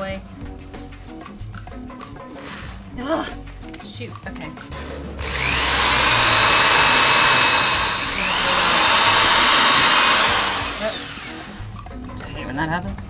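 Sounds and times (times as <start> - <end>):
electric drill boring into wood: 5.2 - 11.8.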